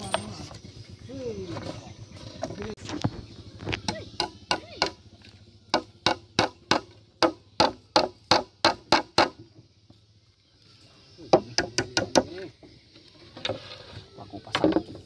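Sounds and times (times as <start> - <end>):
hammer striking nails into wood: 5.7 - 9.5, 11.3 - 12.3.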